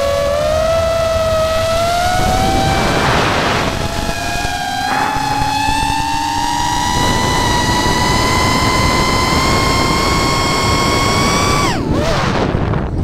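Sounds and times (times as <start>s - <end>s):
drone motors whining: 0.0s - 12.2s
rushing air noise: 2.1s - 8.5s.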